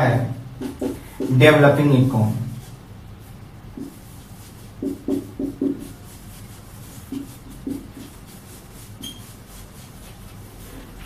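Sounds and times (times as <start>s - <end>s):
marker pen writing on whiteboard: 0.5s - 1.6s, 3.7s - 11.0s.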